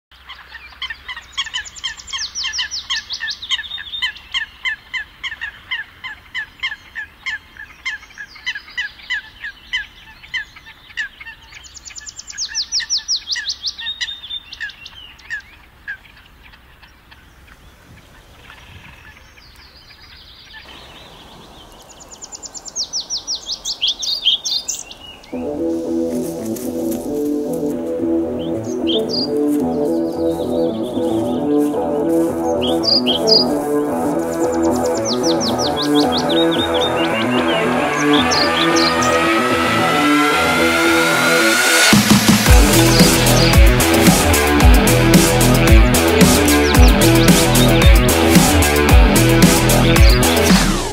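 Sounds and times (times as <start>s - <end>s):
bird high falling trill: 25.2s - 50.9s
bird repeating harsh note: 25.4s - 50.9s.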